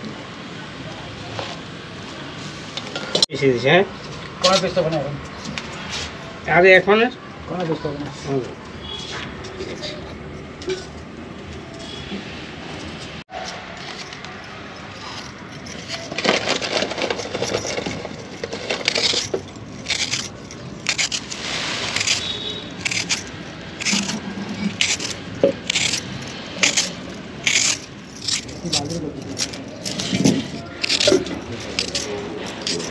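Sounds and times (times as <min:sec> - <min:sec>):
peeler scraping potato skin: 0:18.8 - 0:32.9.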